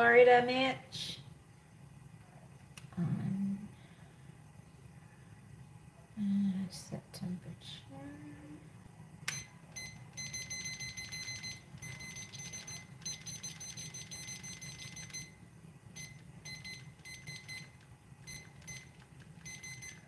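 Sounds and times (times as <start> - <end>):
steady low hum: 0.0 - 20.0
high-pitched alarm beeping: 9.3 - 15.4, 16.0 - 17.7, 18.3 - 20.0.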